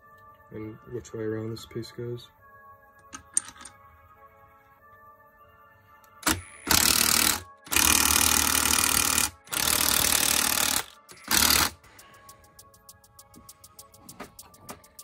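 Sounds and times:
impact wrench hammering bolts: 0:06.2 - 0:11.8.

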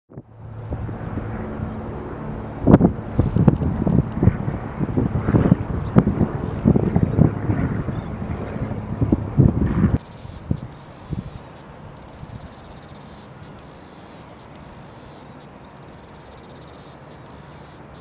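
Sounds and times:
insects trilling: 0:10.0 - 0:18.0.

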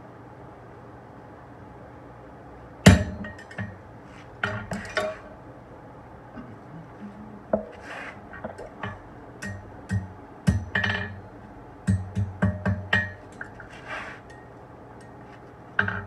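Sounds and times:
hammer clanking on anvil: 0:02.9 - 0:03.8, 0:08.8 - 0:11.2, 0:11.9 - 0:13.6.

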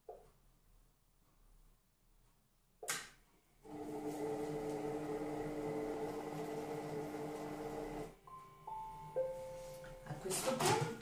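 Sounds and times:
sharp click: 0:02.8 - 0:03.2
food processor motor humming: 0:03.6 - 0:08.1.

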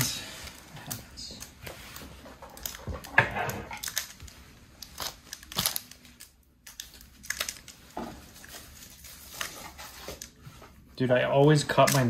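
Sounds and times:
foil wrapper crinkling: 0:01.8 - 0:10.4.

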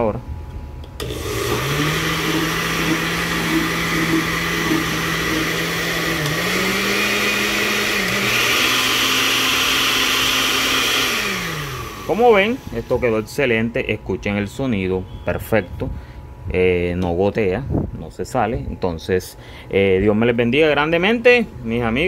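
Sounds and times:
blender motor hum: 0:01.0 - 0:13.2.

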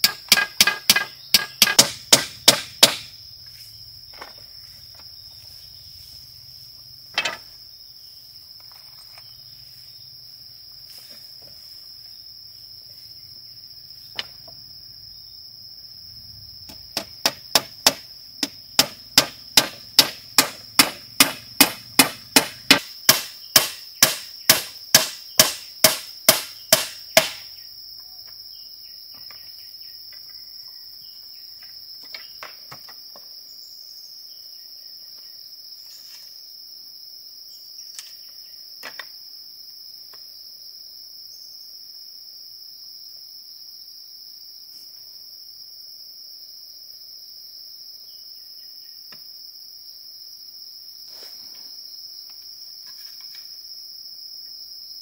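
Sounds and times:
tool striking hard blows: 0:00.0 - 0:03.1, 0:16.7 - 0:27.5
insects droning: 0:00.0 - 0:55.0.

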